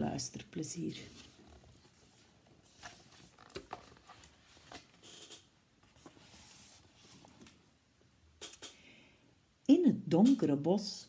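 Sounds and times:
book pages rustling: 0:01.0 - 0:07.6.

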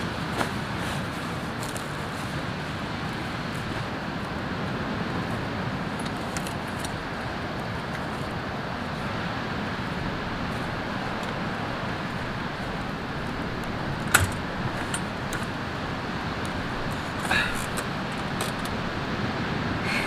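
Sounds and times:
wood fire crackling: 0:00.0 - 0:19.0
steady rushing background noise: 0:00.0 - 0:20.0
sharp knock of gear: 0:14.1 - 0:15.0.

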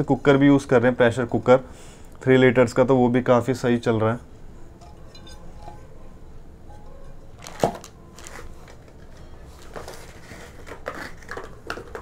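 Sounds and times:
plastic crinkling: 0:07.3 - 0:12.0.

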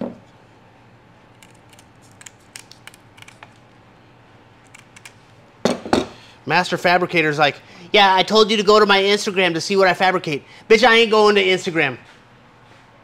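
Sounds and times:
scissors snipping: 0:01.4 - 0:03.6, 0:04.6 - 0:05.2.

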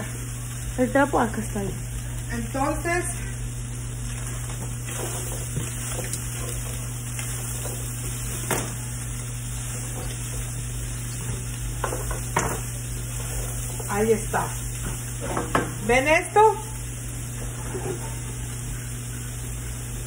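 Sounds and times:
chicken sizzling in frying pan: 0:00.0 - 0:20.0.

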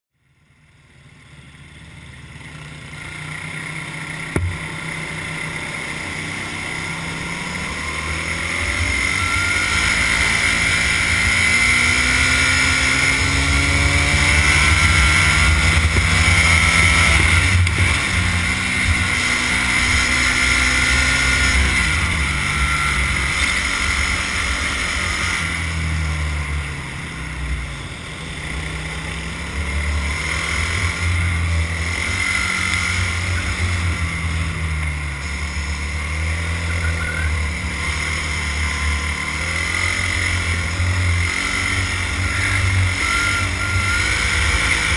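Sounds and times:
steady high whine: 0:00.2 - 0:44.9
go-kart engine revving: 0:00.6 - 0:44.9
short knock: 0:04.3 - 0:04.6.

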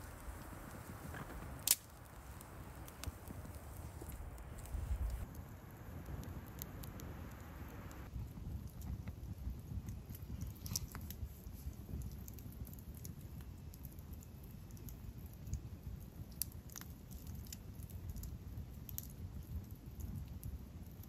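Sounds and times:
low steady rumble: 0:00.0 - 0:08.6
campfire crackling and popping: 0:00.0 - 0:21.0.

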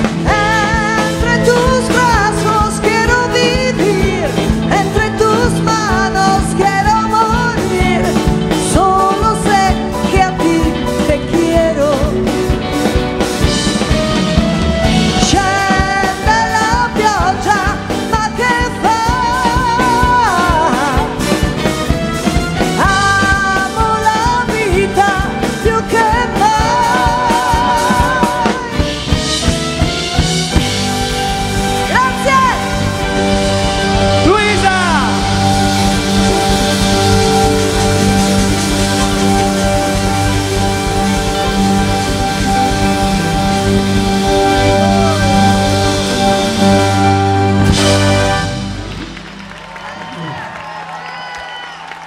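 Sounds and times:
woman singing with vibrato: 0:00.0 - 0:12.6, 0:15.1 - 0:21.4, 0:22.7 - 0:29.1
steady drum beat: 0:00.0 - 0:49.2
live pop rock band: 0:00.0 - 0:52.0
gliding melody line: 0:00.1 - 0:49.6.

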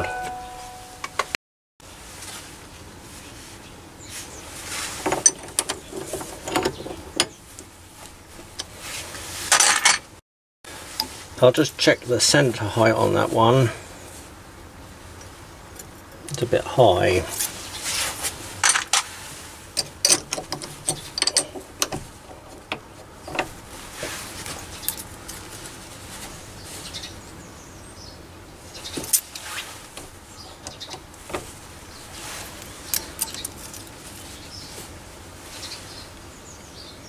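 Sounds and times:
metal tools clicking and clinking: 0:19.8 - 0:23.4, 0:32.4 - 0:33.9.

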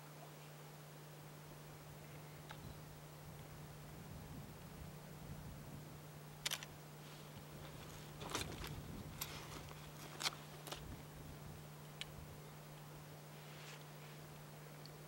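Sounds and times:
sharp little clicks: 0:06.4 - 0:06.7.

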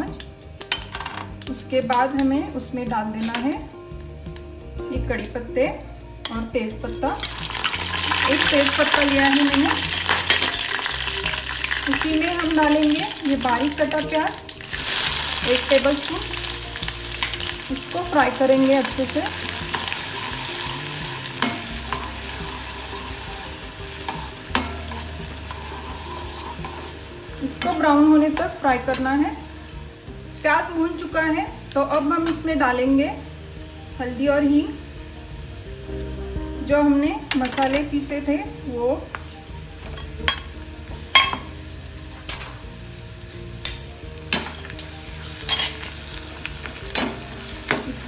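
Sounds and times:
onion sizzling in hot oil: 0:00.0 - 0:48.0
spoon scraping and clinking on pan: 0:00.2 - 0:01.4, 0:06.2 - 0:10.9, 0:18.4 - 0:27.0, 0:27.6 - 0:29.2, 0:39.9 - 0:41.6, 0:42.2 - 0:42.7, 0:43.6 - 0:46.0.

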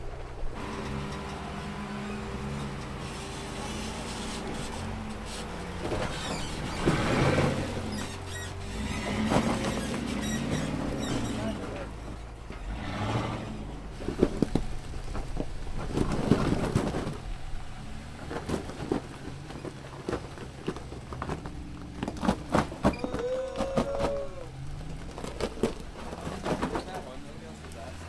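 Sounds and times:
engine running low: 0:00.0 - 0:28.0.

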